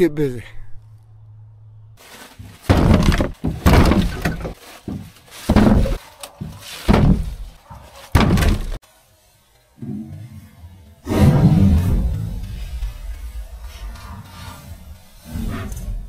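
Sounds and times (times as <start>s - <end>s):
heavy wooden knocks: 2.4s - 7.6s, 8.2s - 8.8s.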